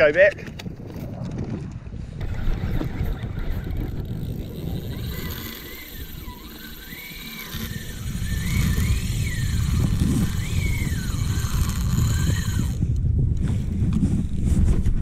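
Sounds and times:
wind buffeting microphone: 0.0 - 15.0
faint rising and falling whine: 2.2 - 12.8.

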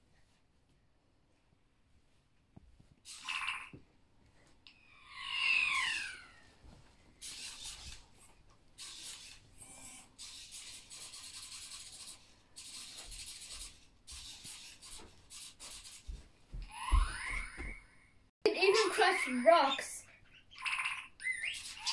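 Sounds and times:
toy robot motors whirring: 3.1 - 3.7, 7.2 - 8.0, 8.8 - 16.0, 20.6 - 21.9.

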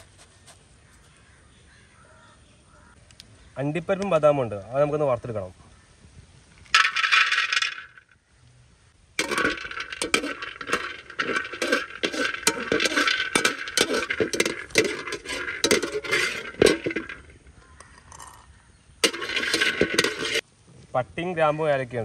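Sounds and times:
nuts clattering into metal pot: 6.7 - 8.1, 9.2 - 20.4
skimmer stirring nuts in pot: 6.8 - 7.8, 9.2 - 18.4, 19.0 - 20.4.

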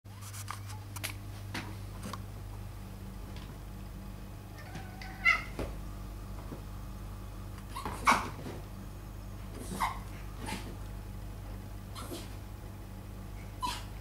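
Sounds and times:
steady low hum: 0.1 - 14.0
cat meowing: 4.6 - 5.6.

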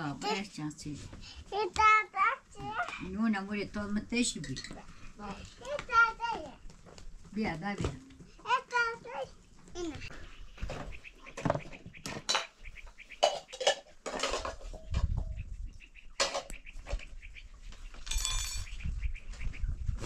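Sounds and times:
metal dishes clinking: 13.2 - 15.0, 18.0 - 18.7
ringing clatter: 18.0 - 18.7.

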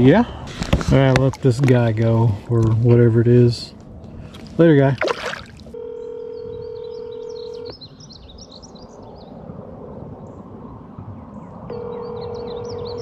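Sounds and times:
telephone ringback tone: 5.8 - 7.7, 11.7 - 13.0
small birds chirping: 6.0 - 13.0.

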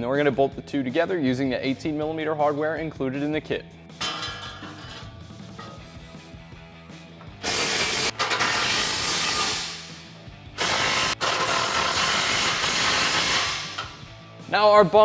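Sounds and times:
cordless impact wrench hammering: 10.6 - 14.0.

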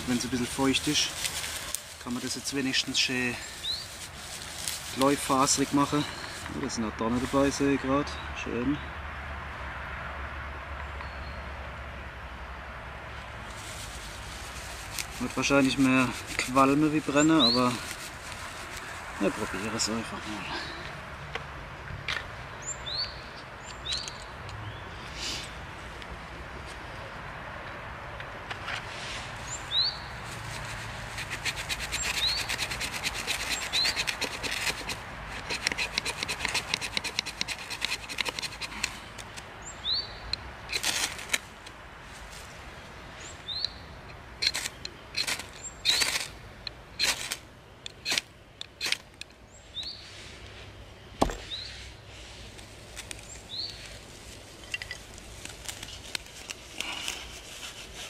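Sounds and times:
dry grass tinder scraping: 0.0 - 7.8, 13.4 - 20.8, 28.7 - 39.4, 40.7 - 42.7, 44.4 - 46.4, 47.0 - 47.4, 50.0 - 58.0
small bird chirping: 22.6 - 25.2, 31.9 - 32.6, 33.4 - 34.2, 39.6 - 40.4, 43.2 - 43.9, 53.2 - 53.9
ferro rod scraping: 30.3 - 39.4, 54.7 - 58.0.

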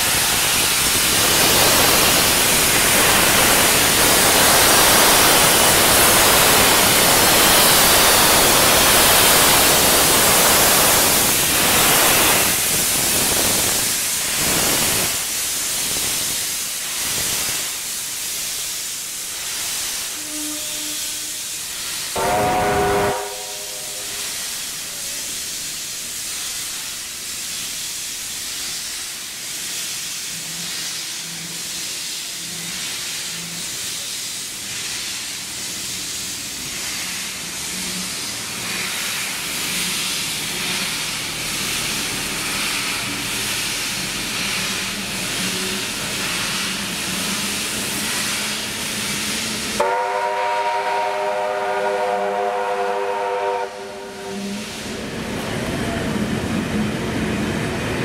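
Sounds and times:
steam hissing: 0.0 - 58.0
train carriages rolling past: 19.2 - 58.0
steam whistle chord: 22.2 - 24.3, 49.8 - 54.6.

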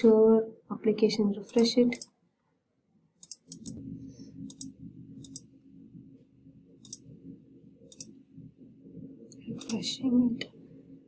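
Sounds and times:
low steady hum: 0.0 - 11.0
computer mouse clicking: 1.4 - 2.1, 3.2 - 3.8, 4.4 - 5.5, 6.8 - 7.1, 7.9 - 8.2, 9.3 - 9.8.

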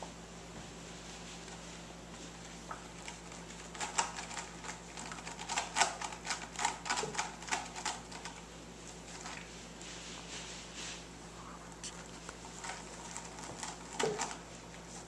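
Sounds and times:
cats clicking and tapping: 2.7 - 8.4, 12.6 - 14.4.

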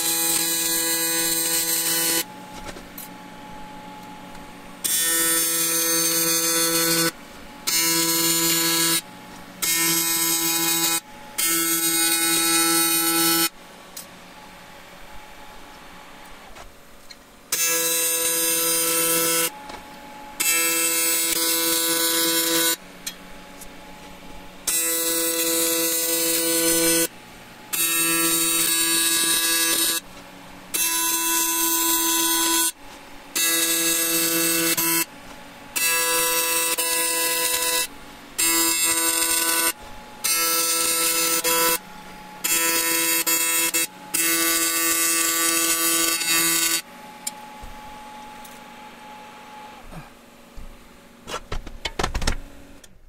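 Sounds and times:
welding arc buzzing: 0.0 - 14.0, 14.7 - 48.6.

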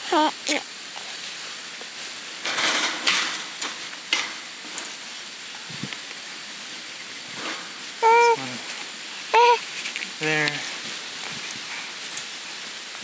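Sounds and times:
wire mesh rattling: 2.4 - 5.0.

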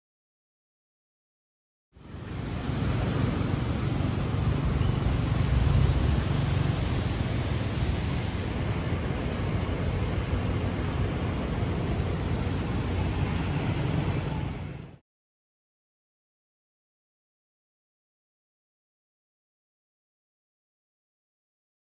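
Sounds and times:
wind buffeting microphone: 2.0 - 15.0.

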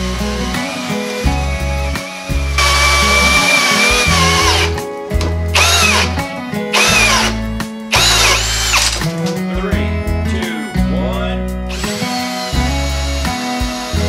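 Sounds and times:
hammer drill motor whine: 0.0 - 4.8, 5.5 - 9.0, 11.7 - 14.0
background music with heavy bass: 0.0 - 14.0.

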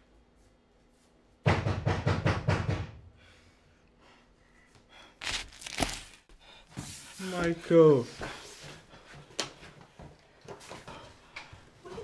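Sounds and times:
fist pounding on wooden door: 1.4 - 3.0.

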